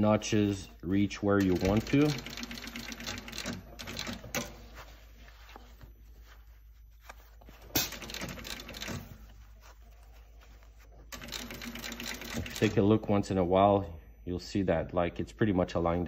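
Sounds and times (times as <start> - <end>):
glove rustling: 3.9 - 11.7.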